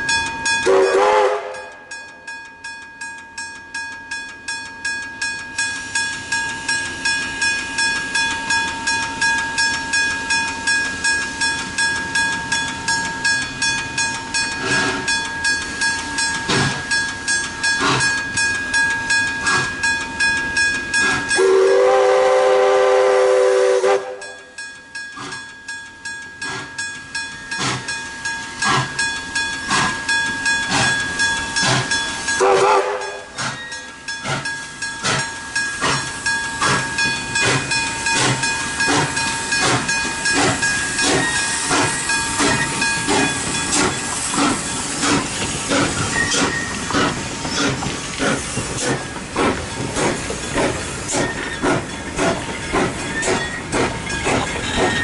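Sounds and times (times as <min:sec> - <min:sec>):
steam whistle: 0:00.6 - 0:01.9, 0:21.4 - 0:24.5, 0:32.4 - 0:33.4
steam hissing: 0:14.4 - 0:18.6, 0:27.5 - 0:55.0.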